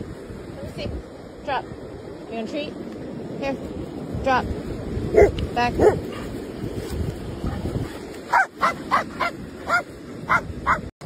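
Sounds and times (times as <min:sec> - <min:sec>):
dog barking: 0:05.1 - 0:06.3, 0:08.3 - 0:10.9.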